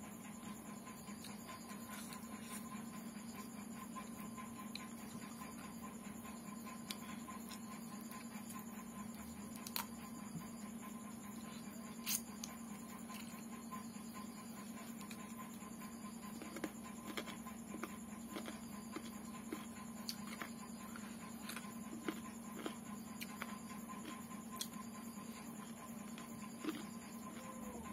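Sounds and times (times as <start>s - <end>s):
steady low hum: 0.0s - 27.9s
person chewing with mouth smacks: 16.3s - 24.8s, 26.0s - 27.8s.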